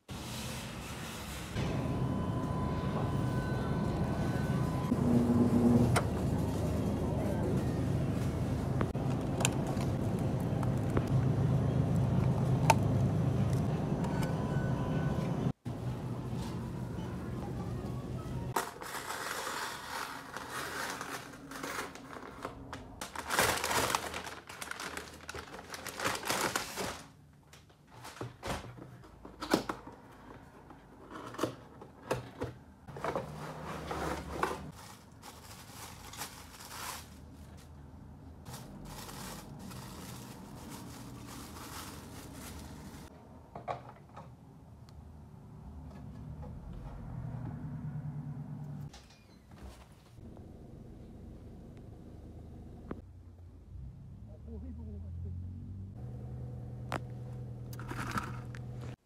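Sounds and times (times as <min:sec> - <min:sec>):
packaging rustling: 0:18.6 - 0:27.2, 0:32.9 - 0:37.8, 0:38.5 - 0:43.1.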